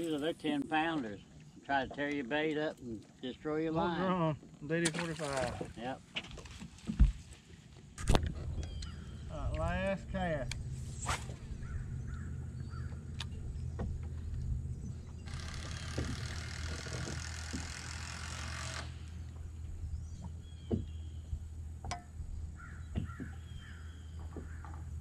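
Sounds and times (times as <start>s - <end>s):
electric trolling motor humming: 8.1s - 25.0s.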